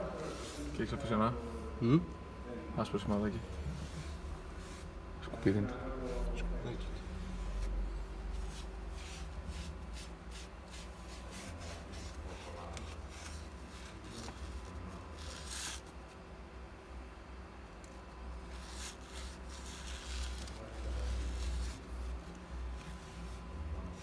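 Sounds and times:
cloth wiping plastic trim: 0:07.1 - 0:16.1, 0:18.4 - 0:24.0.

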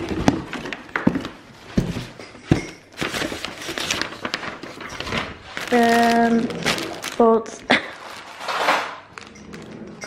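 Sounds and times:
parcel bag rustling and crinkling: 0:02.9 - 0:10.0.

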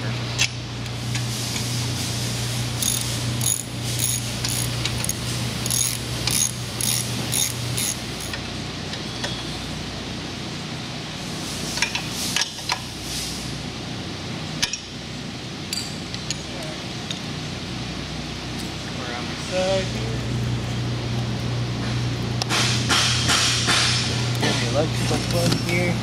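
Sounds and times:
steady low hum: 0:00.0 - 0:26.0
ratchet wrench clicking: 0:02.8 - 0:08.4.

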